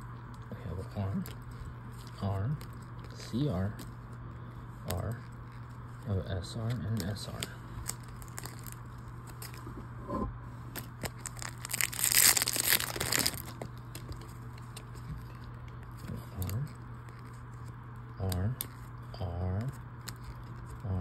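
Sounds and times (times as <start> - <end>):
plastic wrapper ripping: 6.7 - 9.6, 10.8 - 14.9.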